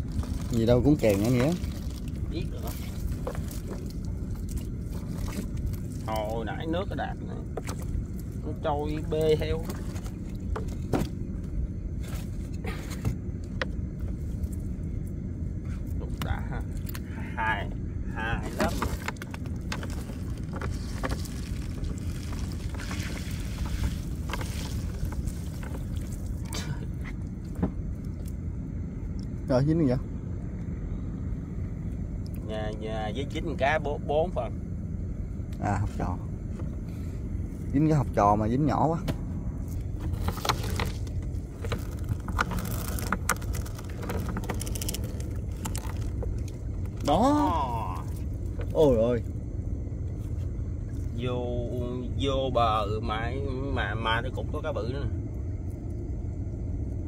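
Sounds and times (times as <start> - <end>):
water splashes: 0.0 - 11.2, 18.4 - 28.4
boat engine low rumble: 0.0 - 57.0.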